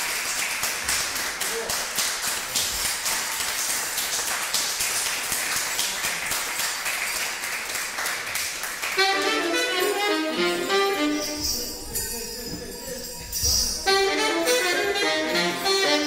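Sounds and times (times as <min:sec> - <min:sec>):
saxophone run: 0:09.0 - 0:11.8, 0:13.8 - 0:16.0.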